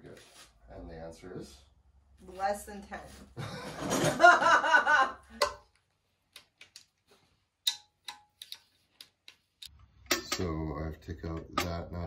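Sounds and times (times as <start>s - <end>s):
woman speaking: 2.2s - 3.3s.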